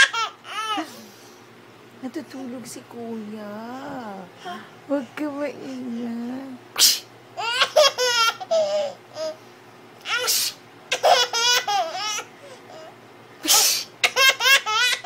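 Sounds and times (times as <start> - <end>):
baby laughing: 0.0 - 1.0, 7.4 - 9.4, 10.0 - 10.3, 10.9 - 12.9, 13.5 - 15.0.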